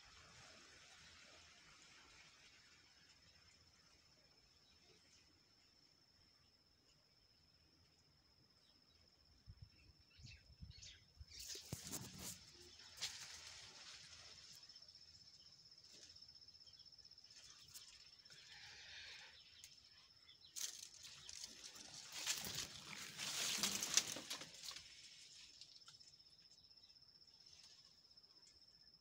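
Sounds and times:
leaves and stems rustling: 11.3 - 26.6.

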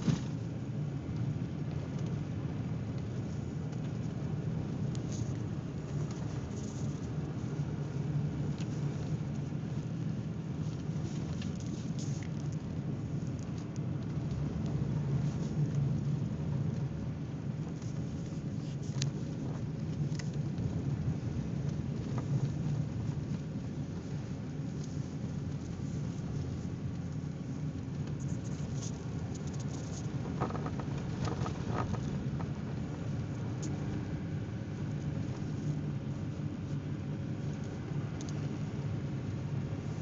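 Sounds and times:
car engine and tyres rumbling: 0.0 - 40.0
light ticks: 37.5 - 38.5.

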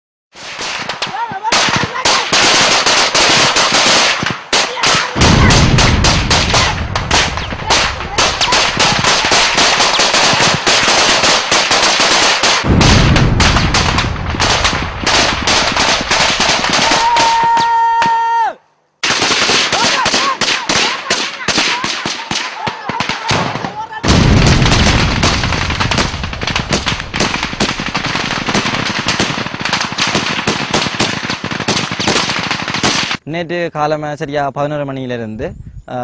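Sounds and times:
automatic weapons fire: 0.4 - 17.6, 19.0 - 33.2
heavy low booms: 5.2 - 9.6, 12.6 - 16.1, 24.0 - 28.8.

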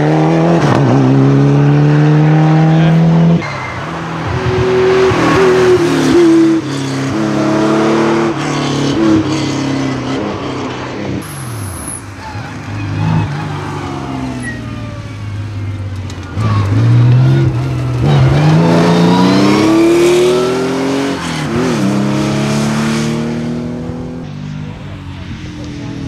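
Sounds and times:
rally car engine accelerating: 0.0 - 3.4, 12.8 - 26.0.

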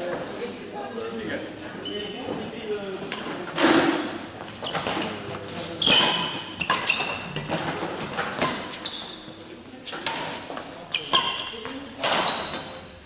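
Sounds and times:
shoes squeaking on gym floor: 1.6 - 2.7, 3.3 - 13.0
rackets striking shuttlecock: 5.9 - 8.8.

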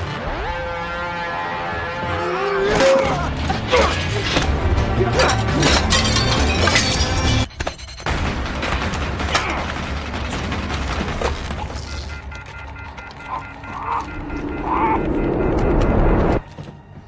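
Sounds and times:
plates smashing: 5.3 - 7.5.

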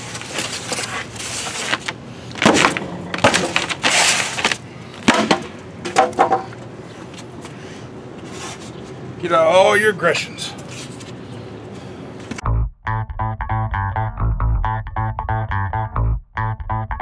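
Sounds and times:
foam board cracking: 0.2 - 5.5.

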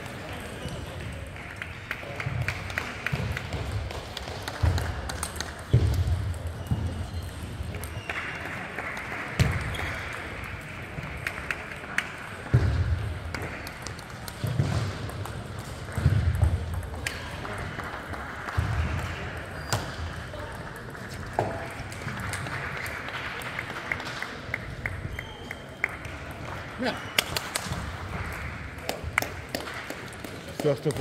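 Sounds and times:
distant voices in a hall: 0.0 - 31.0
table tennis ball hits: 2.4 - 20.2.

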